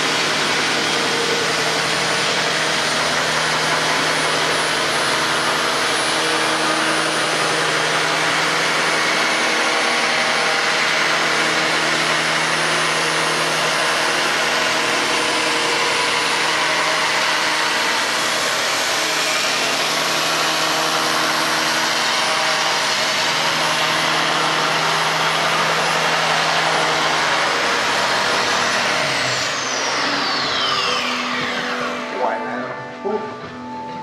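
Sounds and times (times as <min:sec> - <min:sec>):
belt sander sanding wood: 0:00.0 - 0:33.0
motor whine winding down: 0:00.0 - 0:34.0.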